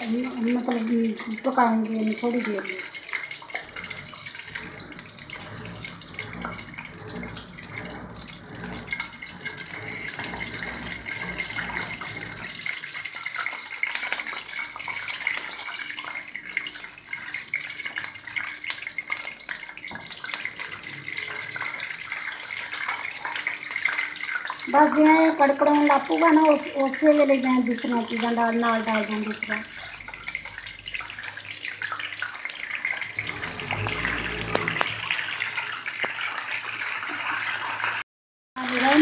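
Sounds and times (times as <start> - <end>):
spices sizzling in hot oil: 0.0 - 7.0, 7.6 - 38.0, 38.6 - 39.0
wooden spatula stirring: 2.8 - 13.6, 33.0 - 35.6.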